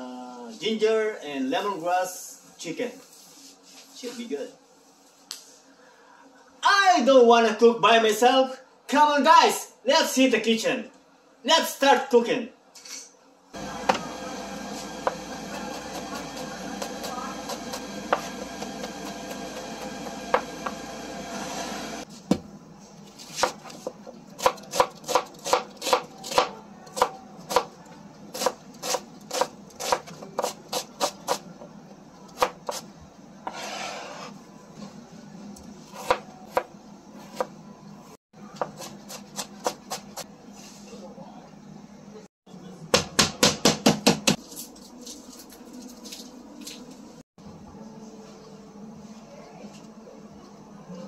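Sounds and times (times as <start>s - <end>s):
knife chopping on cutting board: 15.0s - 20.8s, 23.3s - 27.7s, 28.3s - 31.4s, 32.4s - 32.9s, 35.9s - 36.7s, 38.6s - 40.2s, 43.0s - 44.4s.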